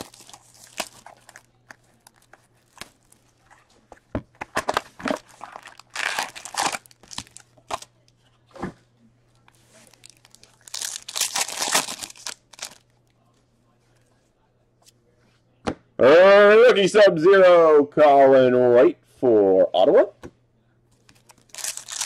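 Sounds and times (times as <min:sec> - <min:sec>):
foil packs rustling: 0:00.0 - 0:03.2, 0:05.1 - 0:07.4, 0:09.8 - 0:12.8, 0:21.4 - 0:22.0
cellophane tearing and crinkling: 0:00.0 - 0:03.3, 0:04.7 - 0:07.9, 0:09.8 - 0:12.9, 0:21.2 - 0:22.0.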